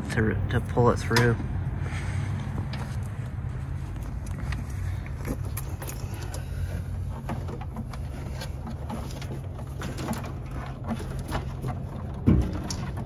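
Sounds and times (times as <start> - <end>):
steady low rumble: 0.0 - 13.0
cable clicks and rustles: 2.6 - 13.0.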